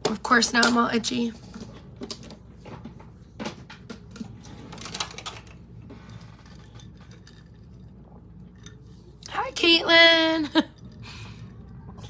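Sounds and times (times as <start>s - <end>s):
clicks and clatters of handling: 0.0s - 7.9s.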